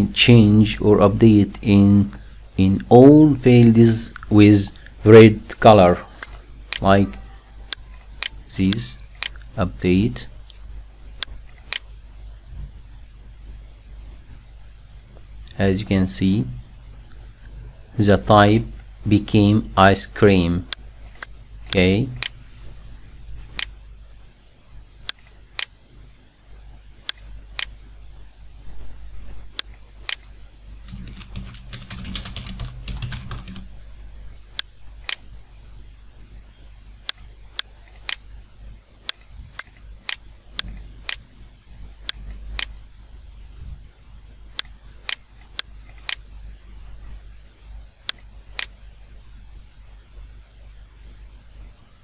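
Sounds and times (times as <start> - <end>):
keyboard and mouse clicks: 29.6 - 33.7, 37.0 - 38.2, 39.0 - 41.2, 44.6 - 46.2.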